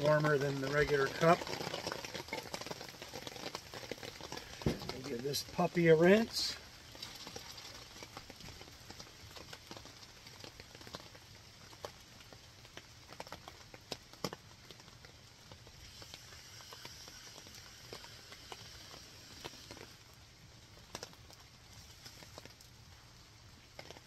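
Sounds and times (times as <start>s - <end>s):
light rain on a tent canopy: 0.0s - 24.0s.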